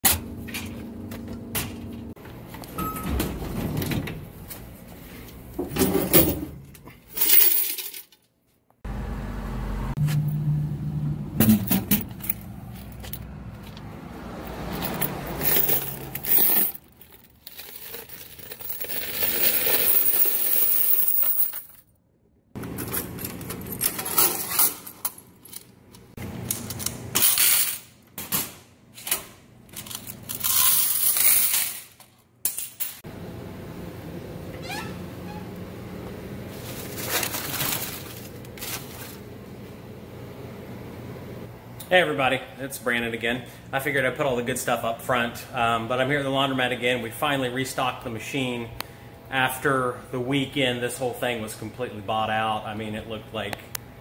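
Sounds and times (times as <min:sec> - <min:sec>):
metal doors rattling: 0:02.8 - 0:04.4
coins clattering and jingling: 0:07.1 - 0:08.3, 0:14.7 - 0:21.8, 0:26.6 - 0:27.8, 0:29.7 - 0:33.0.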